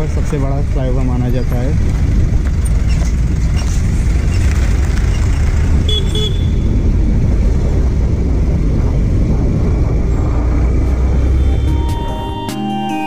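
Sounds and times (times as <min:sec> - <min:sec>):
motorcycle engine: 0:00.0 - 0:12.5
wind noise: 0:00.0 - 0:12.5
short horn beep: 0:05.9 - 0:06.6.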